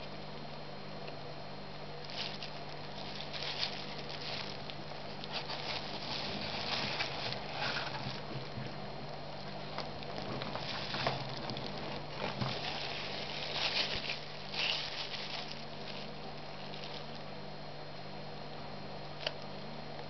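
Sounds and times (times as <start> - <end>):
low hum: 0.0 - 20.0
plastic glove and paper rustling: 2.0 - 17.3.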